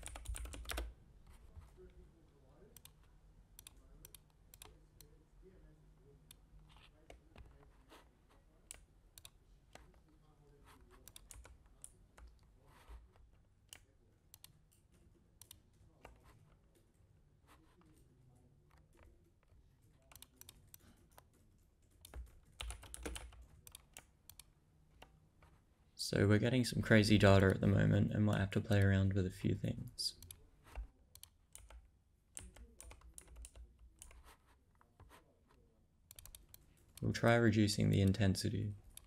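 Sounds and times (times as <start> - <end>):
keyboard and mouse clicks: 0.0 - 0.9, 11.0 - 12.5, 20.0 - 25.2, 30.2 - 35.2, 36.1 - 37.1.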